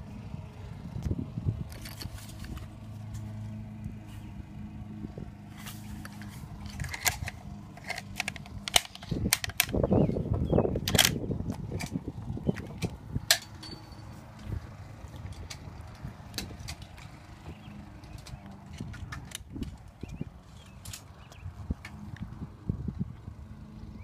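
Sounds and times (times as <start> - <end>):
rifle and cartridges clicking: 6.0 - 10.0, 10.8 - 13.8, 18.0 - 22.0.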